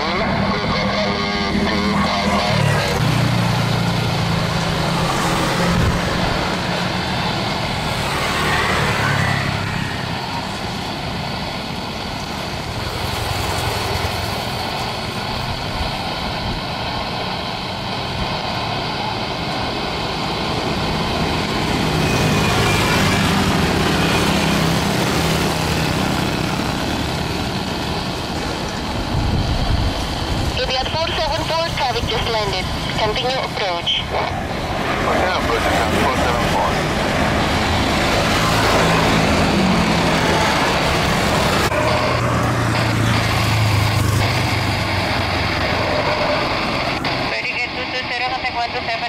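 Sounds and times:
jet engine whine: 0.0s - 49.0s
deep jet rumble: 23.6s - 47.6s.

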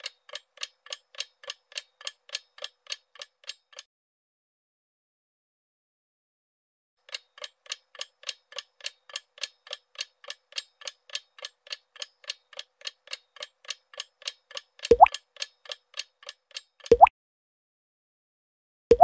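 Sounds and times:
clock ticking: 0.0s - 3.9s, 7.0s - 17.1s.

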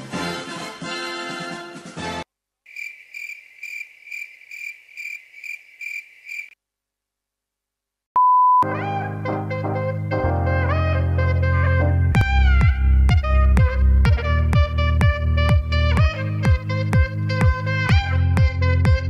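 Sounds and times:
music: 0.0s - 2.3s, 8.6s - 19.0s
cricket chirping: 2.7s - 6.6s.

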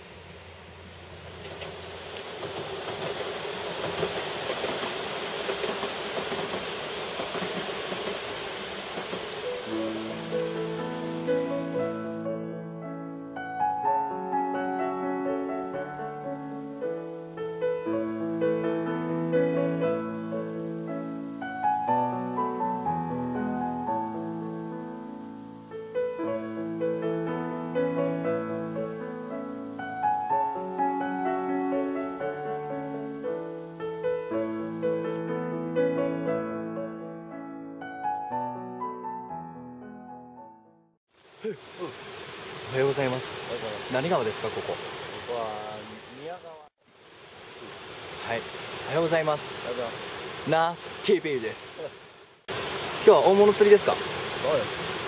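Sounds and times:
passenger train rumbling: 0.0s - 11.9s
river rushing: 0.1s - 12.2s, 41.2s - 55.0s
instrumental music with held chords: 9.7s - 40.9s.

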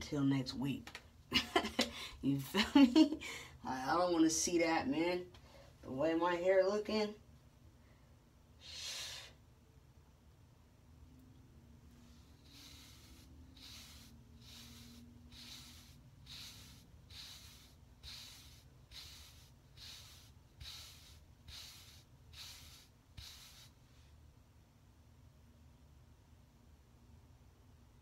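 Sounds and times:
brush swishing through hair: 11.9s - 23.8s.

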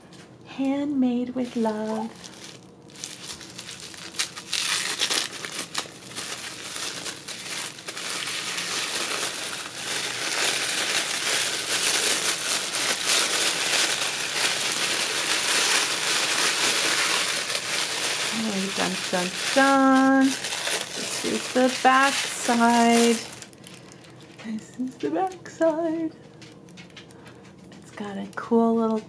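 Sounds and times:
tissue paper crackling and rustling: 1.4s - 24.5s.

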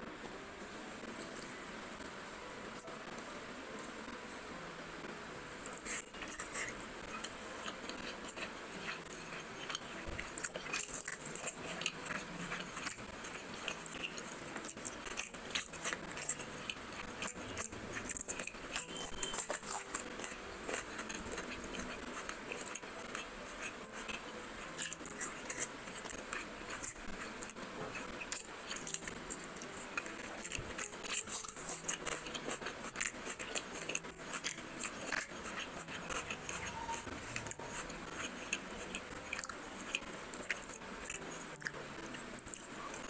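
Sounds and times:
person chewing food: 5.5s - 43.0s.

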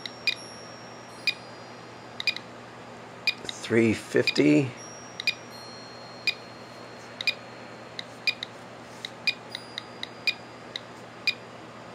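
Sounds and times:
geiger counter clicking: 2.2s - 2.4s, 3.3s - 3.6s, 5.2s - 5.4s, 7.2s - 7.4s, 8.0s - 11.4s.

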